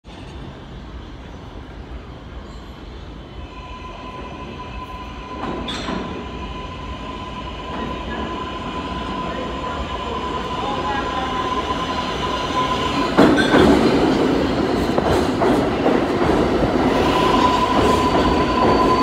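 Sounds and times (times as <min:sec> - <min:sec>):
subway train rumble: 0:00.0 - 0:19.0
high wheel squeal: 0:17.0 - 0:19.0.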